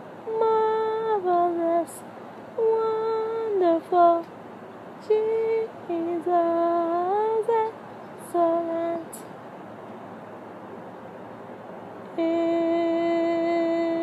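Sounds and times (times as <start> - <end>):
room hiss: 0.0 - 14.0
woman humming a slow melody: 2.6 - 4.2, 12.2 - 14.0.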